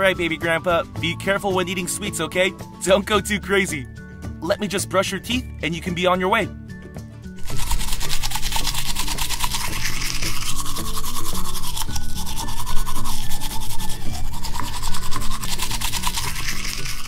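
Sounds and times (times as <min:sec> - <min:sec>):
background music: 0:00.0 - 0:17.0
toothbrush scrubbing dough: 0:07.4 - 0:17.0.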